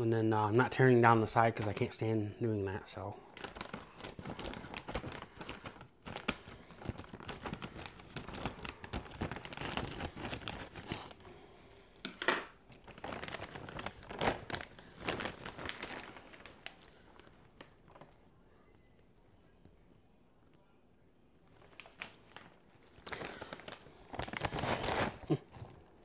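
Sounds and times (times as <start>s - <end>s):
plastic snack bag crinkling: 3.3s - 18.3s, 21.5s - 26.0s.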